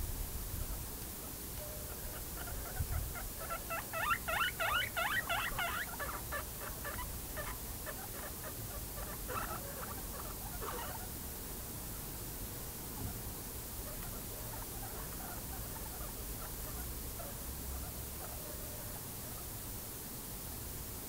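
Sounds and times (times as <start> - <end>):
guinea pig squeaking: 1.6 - 11.1, 13.8 - 18.7.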